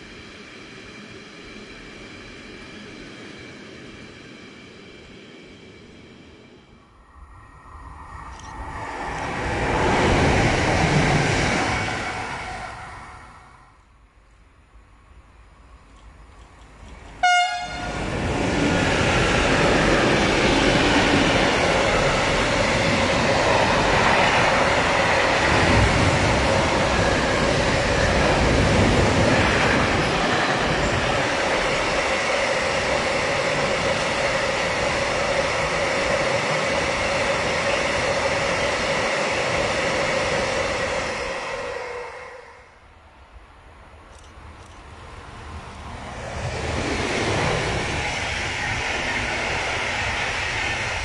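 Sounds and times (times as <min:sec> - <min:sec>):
freight train rolling past: 0:00.0 - 0:14.2, 0:14.8 - 0:51.0
train horn blast: 0:17.2 - 0:18.0.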